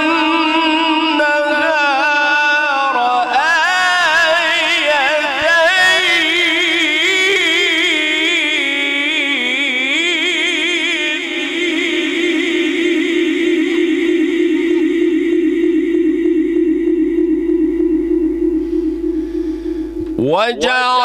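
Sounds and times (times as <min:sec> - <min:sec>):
man reciting melodically: 0:00.0 - 0:15.2, 0:20.1 - 0:21.0.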